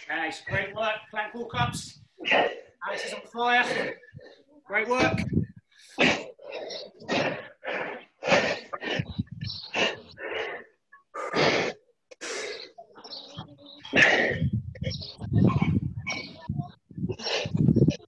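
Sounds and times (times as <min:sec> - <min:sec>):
person breathing hard: 0:05.4 - 0:12.8.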